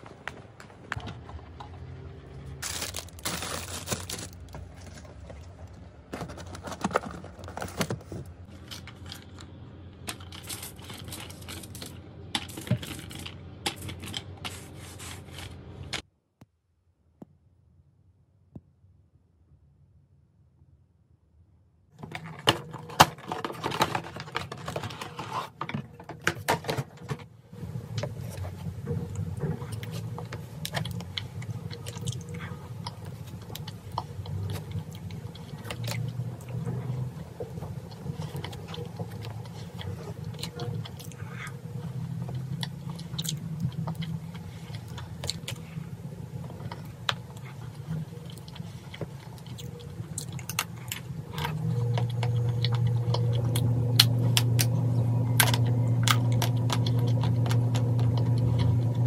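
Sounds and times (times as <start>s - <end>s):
box clattering and rustling: 2.6s - 8.3s, 22.0s - 27.2s
chewing and biting cake: 28.4s - 59.0s.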